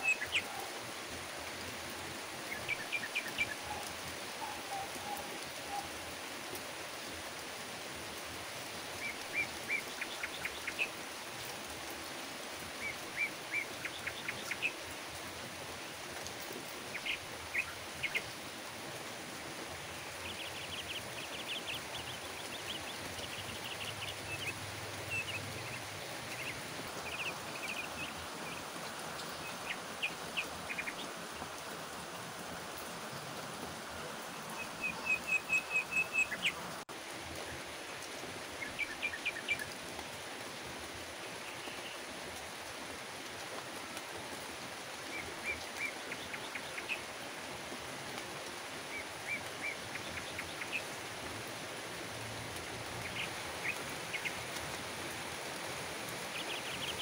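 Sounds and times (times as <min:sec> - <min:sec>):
birds chirping: 0:00.0 - 0:00.7, 0:19.8 - 0:36.8, 0:53.0 - 0:54.6, 0:56.1 - 0:57.0
steady rain falling: 0:00.0 - 0:57.0.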